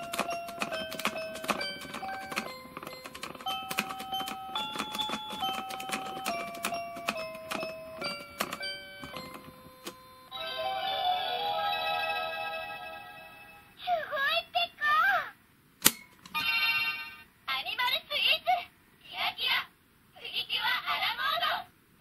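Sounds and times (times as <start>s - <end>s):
toy electronic melody: 0.0s - 13.2s.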